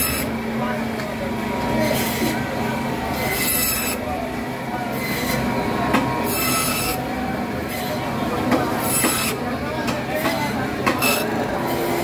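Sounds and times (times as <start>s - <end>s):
band saw blade screeching: 0.0s - 0.3s, 1.8s - 2.4s, 3.1s - 4.1s, 4.9s - 5.5s, 6.2s - 7.0s, 8.8s - 9.4s, 11.0s - 12.0s
band saw motor hum: 0.0s - 12.0s.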